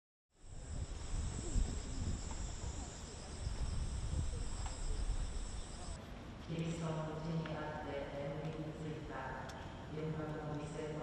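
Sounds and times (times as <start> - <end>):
insects droning: 0.3 - 6.0
wind rumbling on microphone: 0.4 - 6.0.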